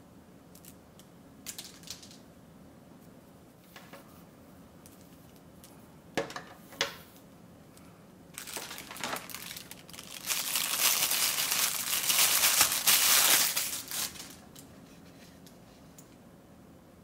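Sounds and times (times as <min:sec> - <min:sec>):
plastic bag crinkling: 0:08.4 - 0:14.6.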